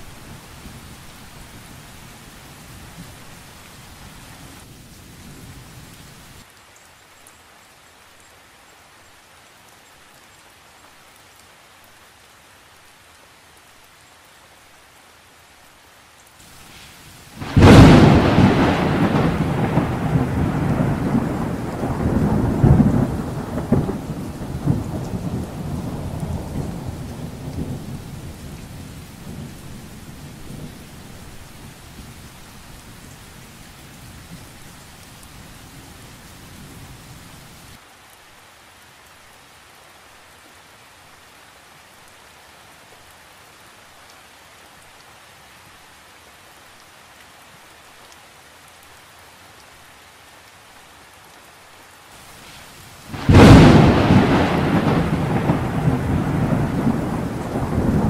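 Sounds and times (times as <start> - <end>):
steady rain hiss: 0.0 - 58.0
rolling thunder: 17.4 - 28.4, 53.1 - 58.0.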